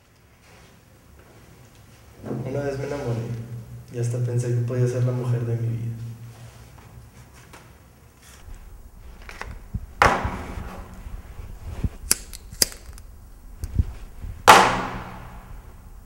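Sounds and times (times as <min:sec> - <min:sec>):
loud sudden sounds: 0:14.2 - 0:16.0.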